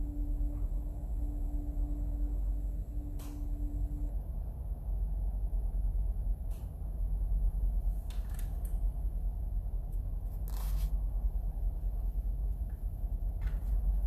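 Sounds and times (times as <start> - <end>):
low room tone hum: 0.0 - 14.0
soft rustles and clicks: 9.8 - 11.1, 11.8 - 14.0.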